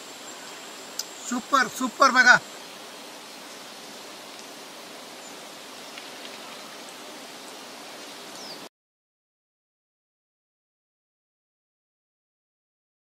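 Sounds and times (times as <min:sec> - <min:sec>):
water rushing down stream: 0:00.0 - 0:08.7.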